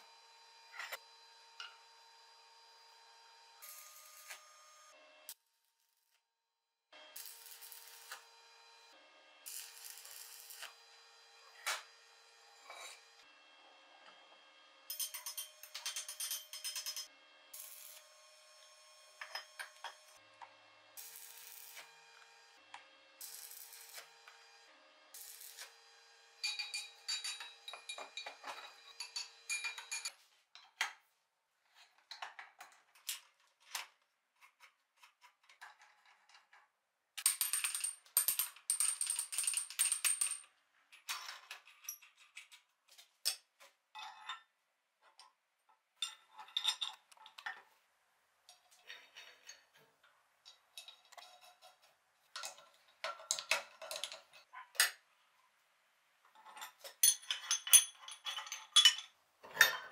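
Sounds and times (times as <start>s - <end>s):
metal tools clinking and knocking: 14.9s - 17.1s, 19.2s - 20.0s, 26.4s - 30.9s, 46.0s - 47.7s, 48.5s - 55.0s, 56.3s - 59.9s.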